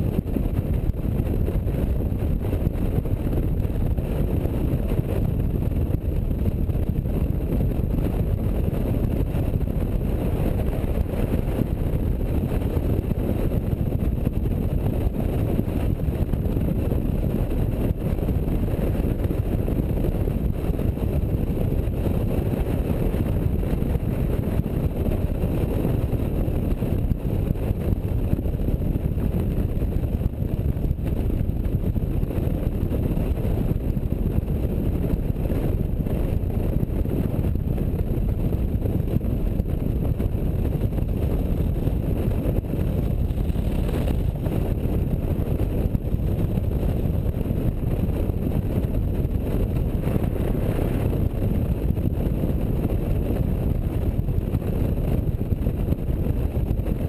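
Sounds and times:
wind rushing on microphone: 0.0 - 57.0
motorcycle engine running: 26.4 - 51.9.

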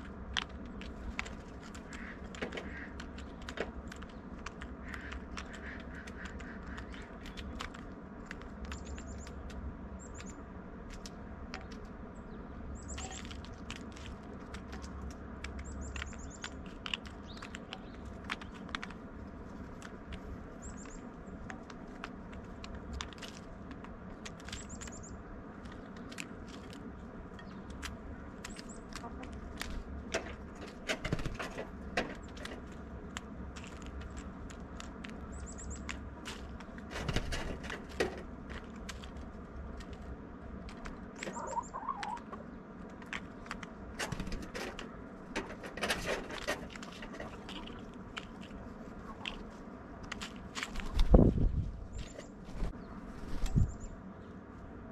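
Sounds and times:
bird tapping on seeds: 0.0 - 11.9, 12.9 - 51.1
faint high bird chirps: 12.2 - 13.2, 41.2 - 42.5.

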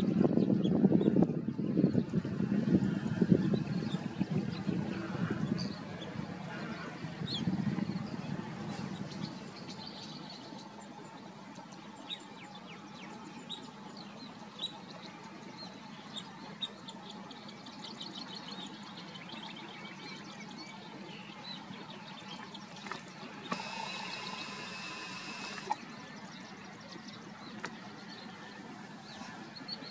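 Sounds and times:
small birds chirping: 0.4 - 29.9
buzzing bird call: 22.8 - 25.9.

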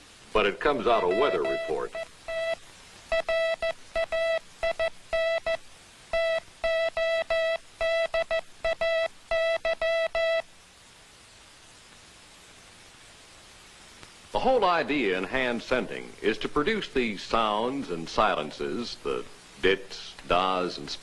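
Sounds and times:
morse code beeping: 0.8 - 10.4.

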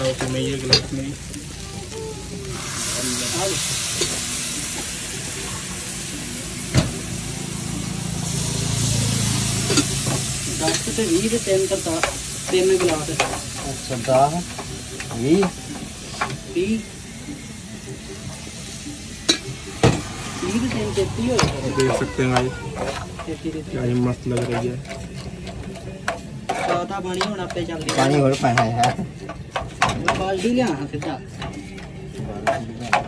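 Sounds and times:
noodles sizzling in a pan: 0.0 - 24.8.

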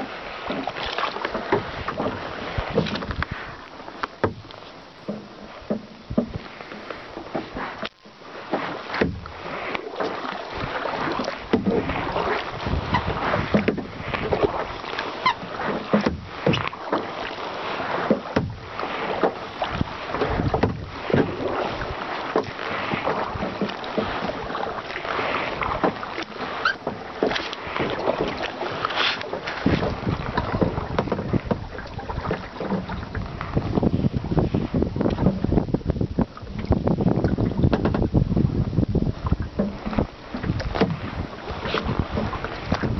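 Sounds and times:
water lapping against kayak hull: 0.0 - 42.9
wind rumbling on microphone: 0.0 - 42.9.

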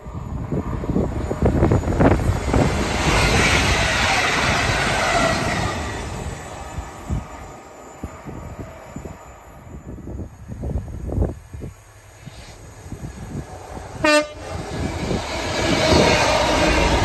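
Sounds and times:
express train passing at speed: 0.0 - 17.0.

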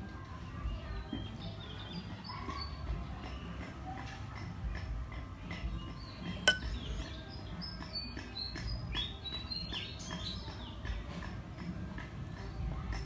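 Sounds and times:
small birds chirping: 5.6 - 11.0
sharp clink: 6.5 - 6.8.

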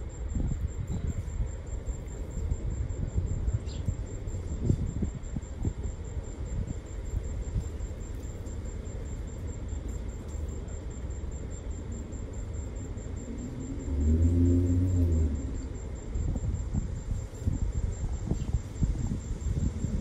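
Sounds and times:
low outdoor rumble: 0.0 - 20.0.

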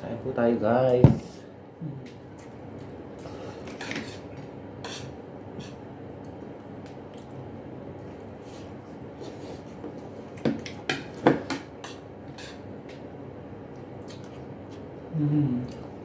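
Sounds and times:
low room hum: 0.0 - 16.0
soft chewing: 5.7 - 10.8, 11.9 - 16.0.

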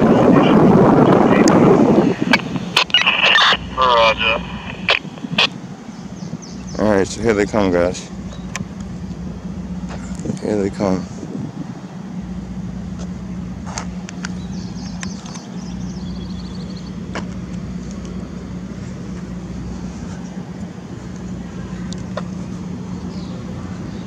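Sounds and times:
engine humming: 0.0 - 24.0.

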